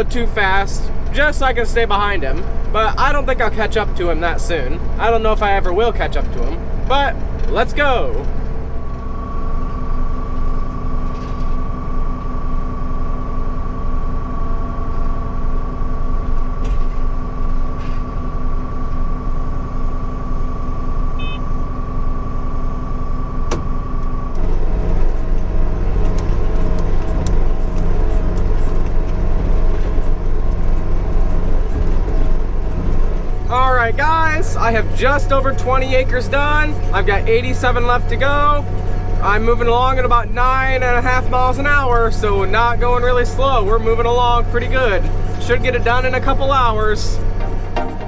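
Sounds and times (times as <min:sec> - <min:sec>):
tractor diesel engine running: 0:00.0 - 0:48.0.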